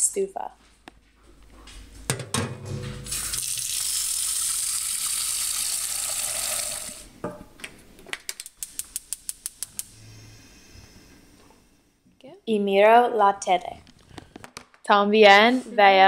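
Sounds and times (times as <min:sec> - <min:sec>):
tap water running into saucepan: 0:03.0 - 0:07.1.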